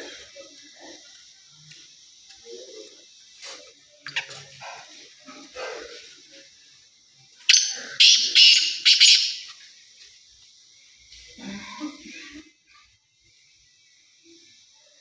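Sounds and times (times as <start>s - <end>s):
francolin calling: 7.4s - 9.6s.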